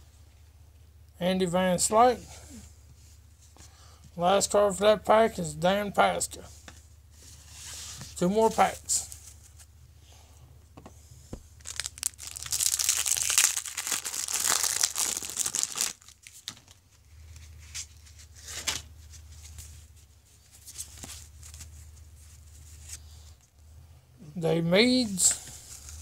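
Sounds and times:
low steady hum: 0:00.0 - 0:26.0
wrapper tearing and crinkling: 0:11.6 - 0:16.8.

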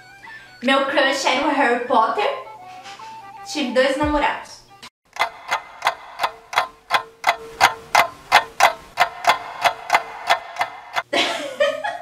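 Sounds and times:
clock ticking: 0:05.1 - 0:11.1.

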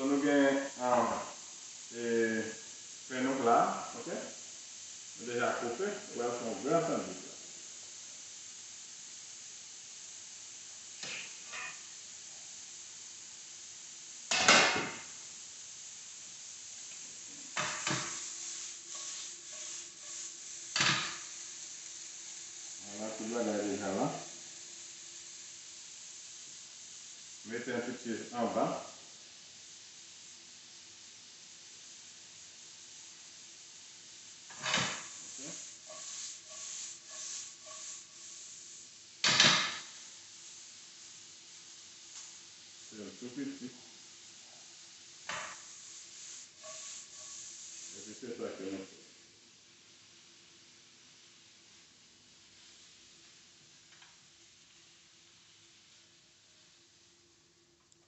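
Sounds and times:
faint sizzle from frying pan: 0:00.0 - 0:58.0
metal spatula scraping skillet: 0:11.0 - 0:11.8, 0:17.6 - 0:21.3, 0:34.5 - 0:38.2, 0:46.6 - 0:47.5.

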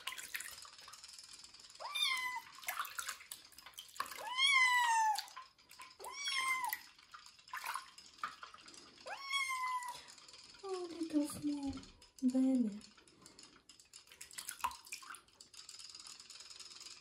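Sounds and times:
kitten meowing: 0:01.8 - 0:02.5, 0:04.2 - 0:05.3, 0:06.0 - 0:06.8, 0:09.0 - 0:10.0.

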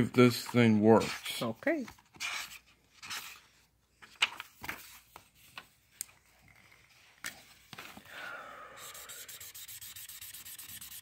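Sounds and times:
paper rustling: 0:00.4 - 0:08.1
marker rubbing on paper: 0:00.9 - 0:01.5, 0:08.8 - 0:11.0.

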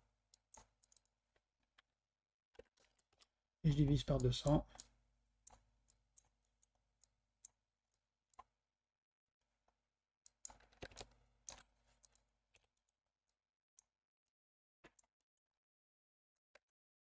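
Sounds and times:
computer keyboard clicks: 0:10.3 - 0:12.7.

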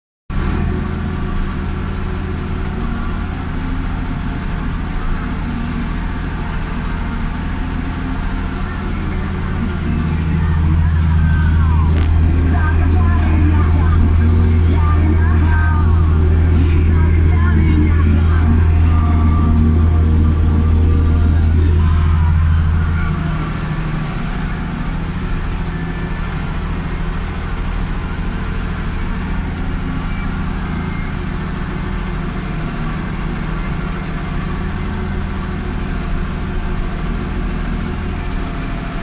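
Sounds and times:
tractor diesel engine under load: 0:00.3 - 0:39.0.

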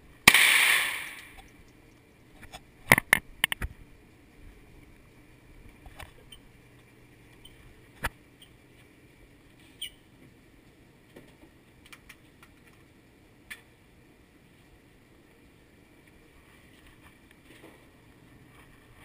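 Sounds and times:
sharp bang: 0:00.3 - 0:01.3
small clicks and knocks: 0:01.3 - 0:03.8, 0:11.0 - 0:13.7.

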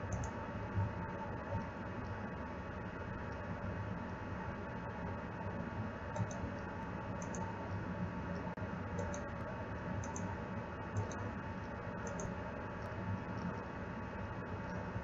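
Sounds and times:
computer mouse double clicks: 0:12.0 - 0:12.3.

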